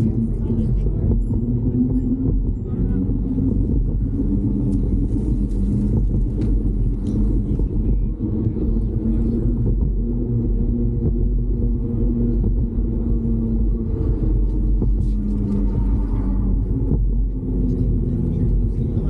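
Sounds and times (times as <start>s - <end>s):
wind rumble: 0.0s - 19.0s
bicycle tyre noise on pavement: 3.7s - 10.3s.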